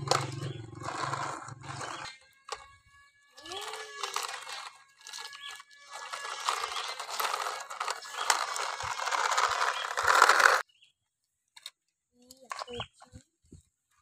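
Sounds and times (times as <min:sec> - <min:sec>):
toy truck wheels crunching on grit: 0:00.0 - 0:10.6.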